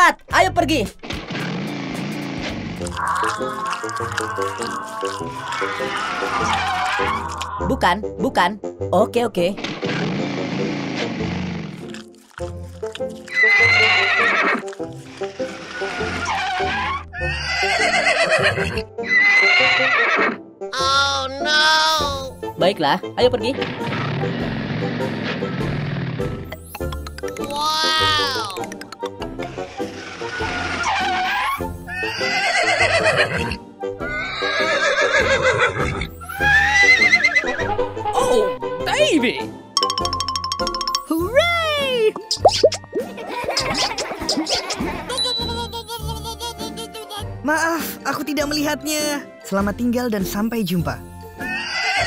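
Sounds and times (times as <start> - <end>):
whinny-like animal calls: 2.9 - 7.8, 15.7 - 20.4, 30.2 - 37.8, 51.4 - 52.0
quavering whinny-like calls: 5.4 - 7.4, 51.4 - 52.0
cartoon music with steady beat: 26.3 - 29.6, 37.6 - 47.5.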